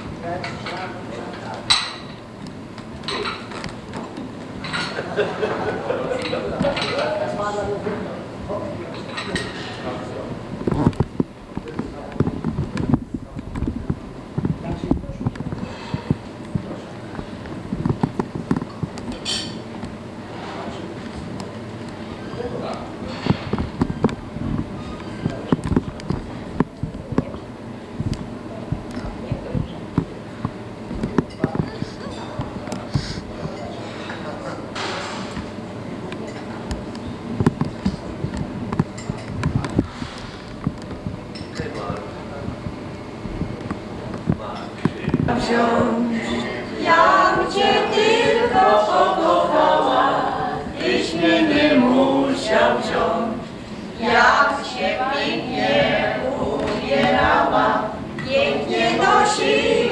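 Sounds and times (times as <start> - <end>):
group singing unaccompanied: 45.3 - 59.9.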